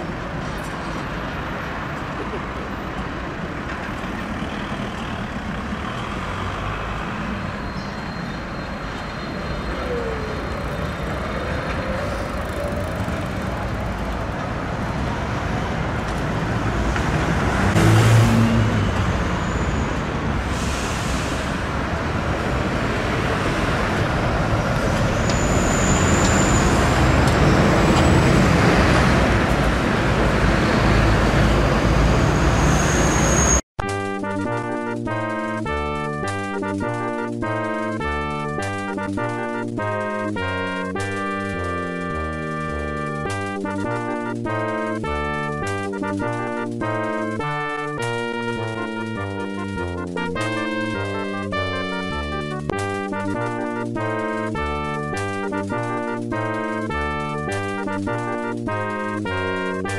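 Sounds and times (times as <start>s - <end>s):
rail vehicle rumbling: 0.0s - 33.6s
high-pitched squeals: 7.1s - 13.3s, 24.8s - 29.1s, 30.5s - 33.6s.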